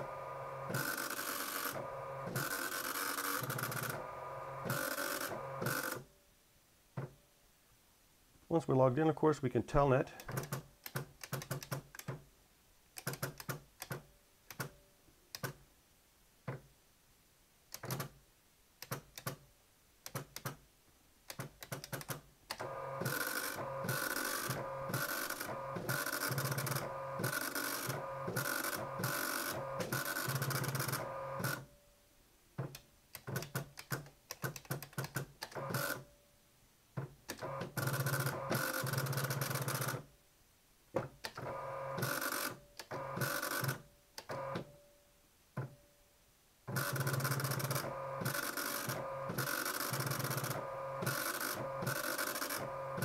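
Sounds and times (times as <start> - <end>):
print head printing lines: 0.0 - 6.0, 22.6 - 31.6, 37.4 - 40.0, 41.4 - 44.6, 46.7 - 53.0.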